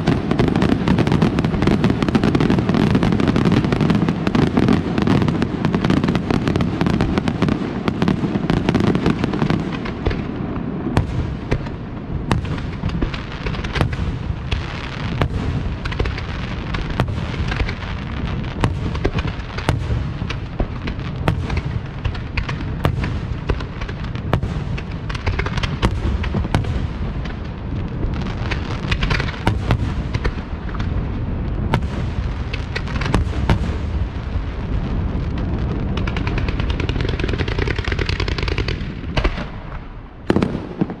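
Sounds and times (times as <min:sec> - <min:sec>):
fireworks bangs: 0:00.0 - 0:41.0
fireworks rumble and crackle: 0:00.0 - 0:41.0.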